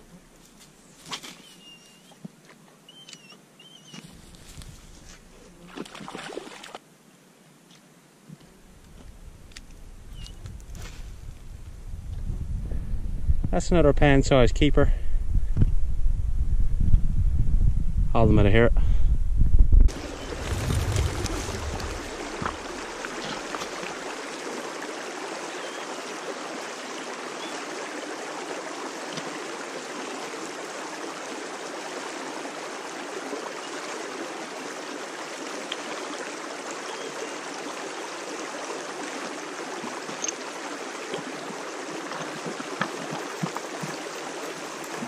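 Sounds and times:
stream water rushing: 5.7 - 6.8, 19.9 - 45.0.

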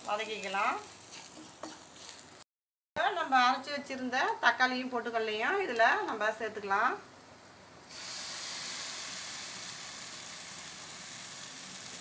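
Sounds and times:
onions sizzling in oil: 0.0 - 2.4, 7.9 - 12.0.

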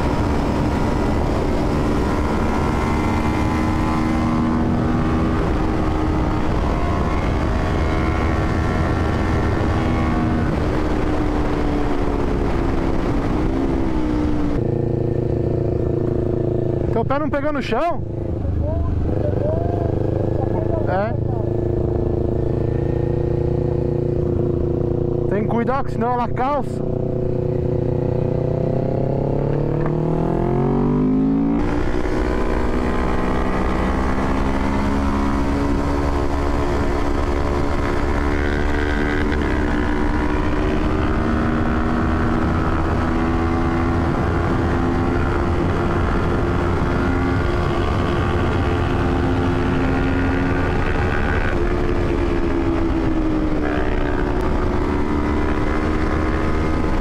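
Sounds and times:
wind rush on microphone: 0.0 - 17.4, 18.0 - 57.0
motorcycle engine revving: 0.0 - 57.0.

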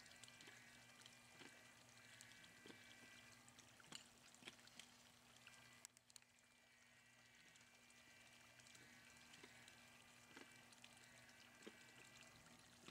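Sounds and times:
faint steady hum: 0.0 - 12.9
small clicks: 5.8 - 6.3.

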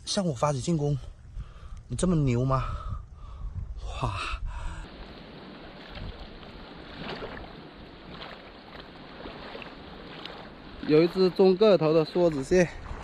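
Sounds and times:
sea water washing on rocky shore: 4.9 - 13.0.

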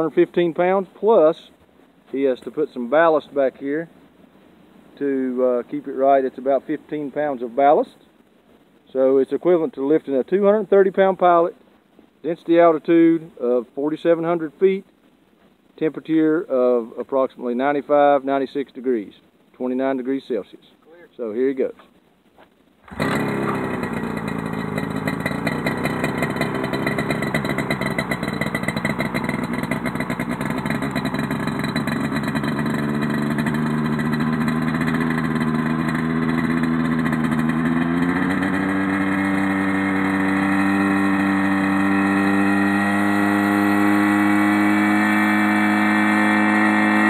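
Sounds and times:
two-stroke engine running: 22.9 - 47.0.

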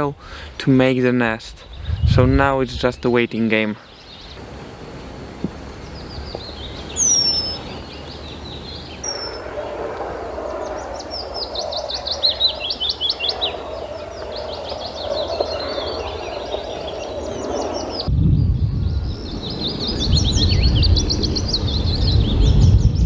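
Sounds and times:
songbirds singing: 0.0 - 23.0
steady background rush: 5.1 - 18.1.

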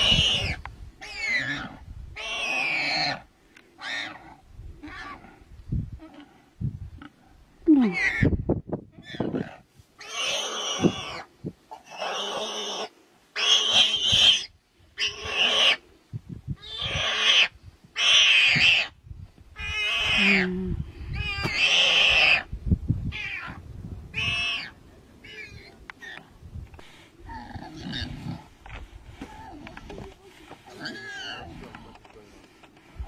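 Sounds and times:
pig squealing: 0.0 - 3.2, 3.8 - 4.2, 10.0 - 15.8, 16.6 - 19.0, 19.6 - 20.5, 21.2 - 22.5, 24.2 - 26.2, 30.8 - 31.6.

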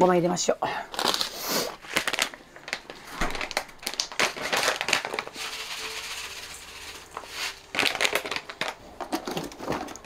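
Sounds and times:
plastic package crinkling: 0.9 - 10.0
seeds poured into metal bowl: 4.9 - 8.3.

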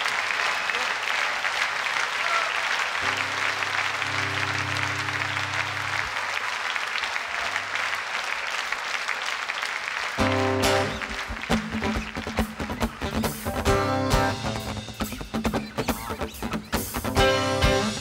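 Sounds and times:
audience applauding: 0.0 - 18.0
low held chord: 3.0 - 6.0
band playing: 3.0 - 6.4, 10.2 - 18.0.

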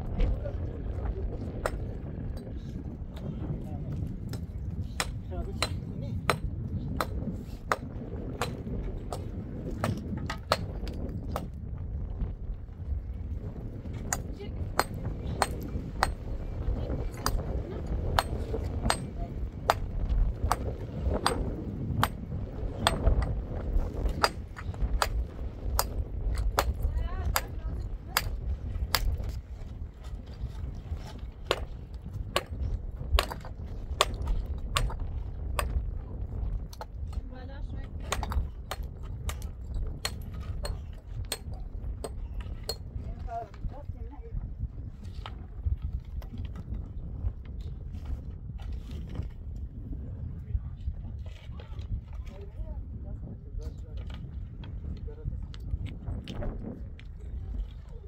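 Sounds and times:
low steady rumble: 0.0 - 58.0
tool striking stone: 9.8 - 11.5, 14.1 - 16.2, 18.2 - 22.2, 22.8 - 23.4, 24.1 - 25.2, 25.8 - 27.5, 33.2 - 35.0, 38.1 - 42.8.

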